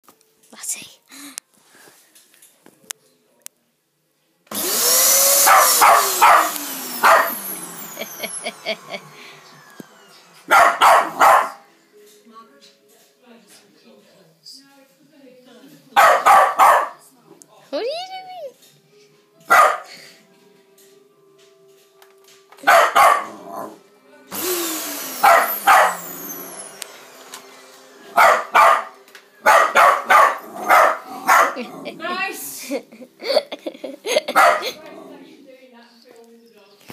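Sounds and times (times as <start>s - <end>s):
vacuum cleaner motor: 4.5s - 11.6s, 23.2s - 32.1s
small dog barking and yapping: 5.4s - 7.4s, 10.4s - 11.6s, 22.6s - 23.4s, 25.2s - 26.0s, 28.2s - 31.6s.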